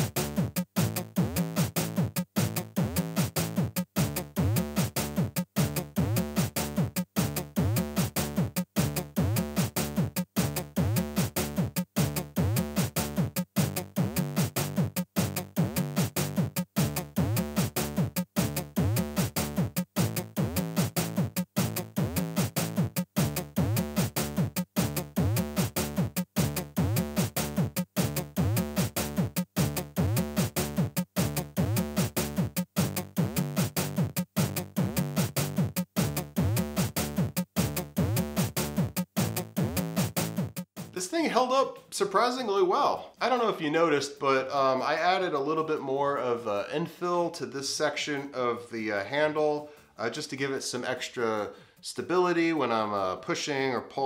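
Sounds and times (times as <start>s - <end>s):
electronic music with drum-machine beat: 0.0s - 41.4s.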